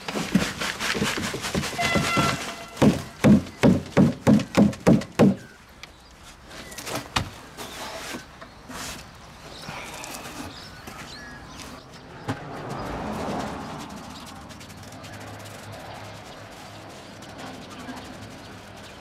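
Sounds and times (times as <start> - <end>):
plastic tub scraping and clatter: 0.0 - 5.2.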